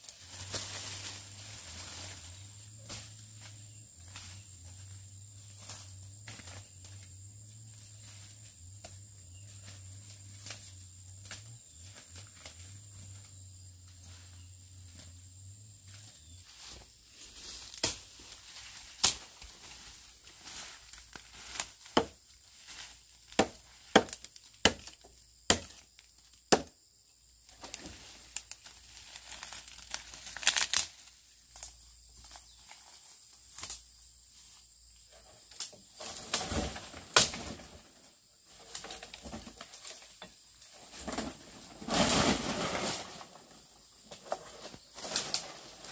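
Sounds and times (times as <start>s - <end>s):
dry twigs snapping: 19.0s - 19.2s, 27.6s - 31.7s.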